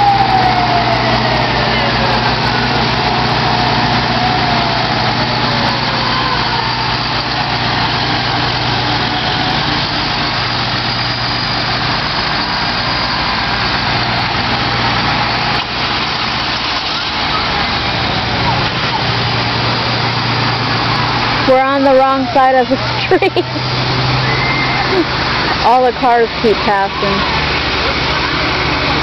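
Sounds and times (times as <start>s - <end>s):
siren wailing: 0.0s - 15.7s, 23.9s - 28.9s
vehicle engines passing slowly: 0.0s - 29.0s.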